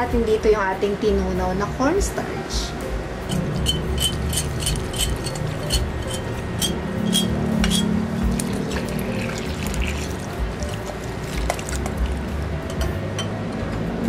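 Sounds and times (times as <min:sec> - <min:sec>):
light clinks on glass bowl: 0:03.3 - 0:10.0.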